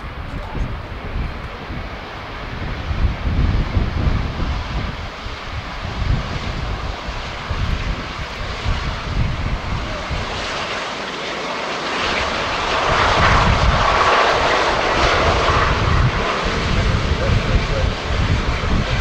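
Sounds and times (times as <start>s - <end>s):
jet engines running: 0.0s - 19.0s
wind rumbling on microphone: 0.0s - 19.0s.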